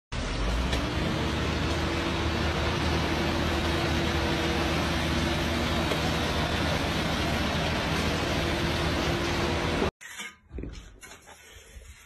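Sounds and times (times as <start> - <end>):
street noise: 0.1 - 9.9
vehicle engine running: 0.1 - 9.9.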